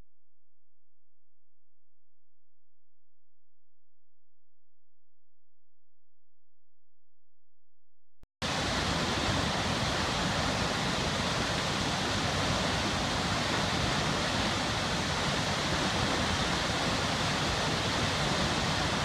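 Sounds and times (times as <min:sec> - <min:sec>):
waterfall rushing: 0:08.4 - 0:19.0.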